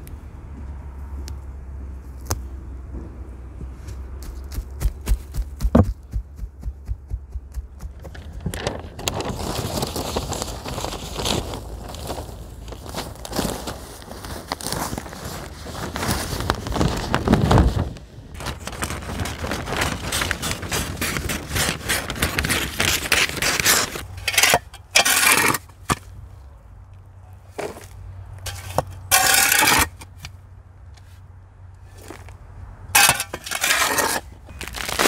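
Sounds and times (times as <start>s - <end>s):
paper crinkling and rustling: 8.0s - 24.5s, 33.9s - 35.0s
shovel scraping soil: 18.4s - 26.1s, 27.5s - 30.4s, 31.9s - 32.3s, 33.0s - 35.0s.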